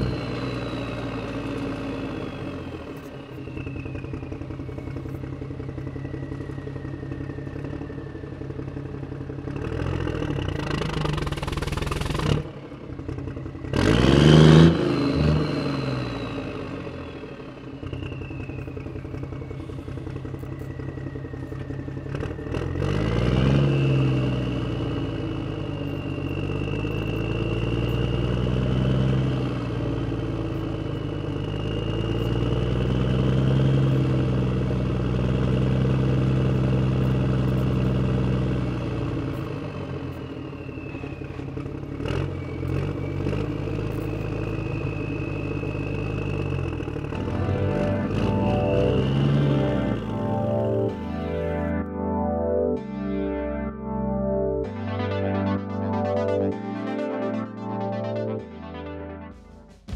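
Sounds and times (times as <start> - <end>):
diesel tractor engine: 0.0 - 59.9
high whine: 44.9 - 59.9.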